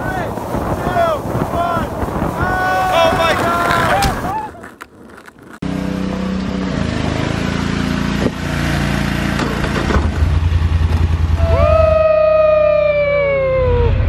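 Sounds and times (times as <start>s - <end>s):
atv engine running: 5.6s - 12.1s
slowly falling high tone: 11.4s - 14.0s.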